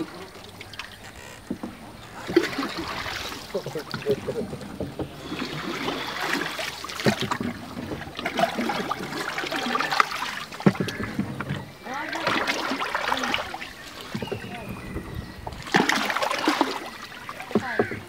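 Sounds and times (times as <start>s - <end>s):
paddle pulling through water: 0.0s - 18.0s
water lapping against wooden hull: 0.0s - 18.0s
sharp knocks: 10.6s - 11.6s.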